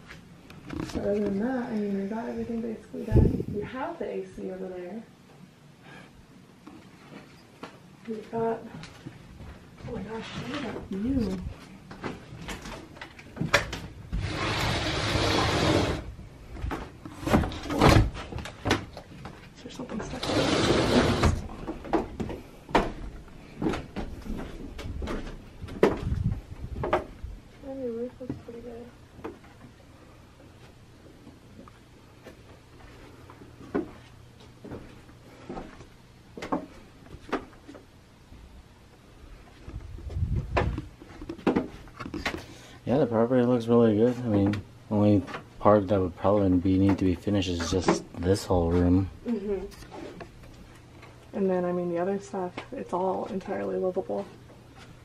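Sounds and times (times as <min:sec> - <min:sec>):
sliding door rolling on track: 0:14.2 - 0:16.1, 0:20.2 - 0:21.4
footsteps on wooden deck: 0:21.3 - 0:27.2.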